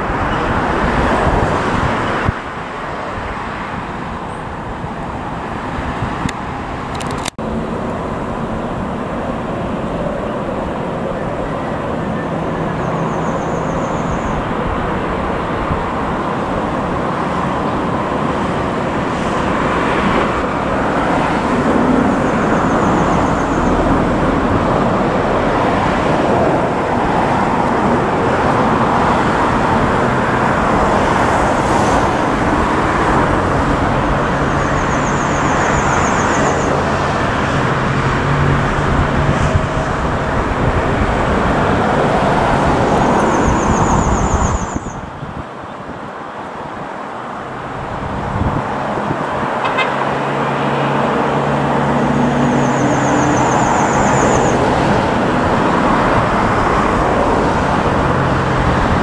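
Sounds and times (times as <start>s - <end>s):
jet engines running: 6.3s - 44.6s.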